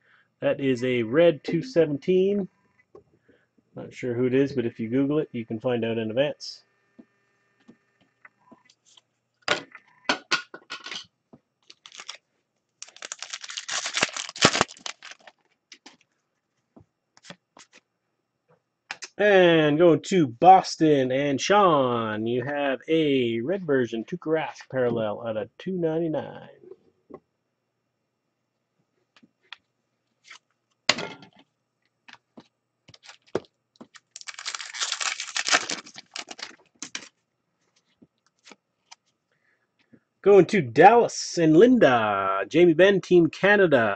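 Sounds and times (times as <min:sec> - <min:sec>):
wrapper tearing and crinkling: 0:11.6 - 0:12.2, 0:12.8 - 0:16.0, 0:32.9 - 0:37.1.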